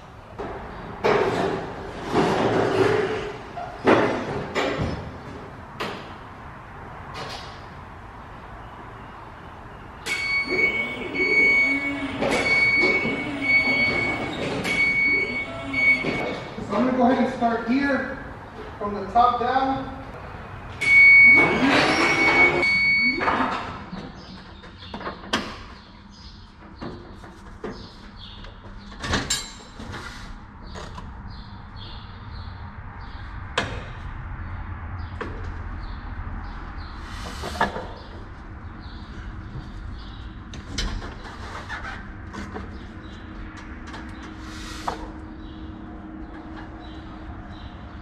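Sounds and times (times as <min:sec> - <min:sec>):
rising machine whine: 0:10.0 - 0:16.5.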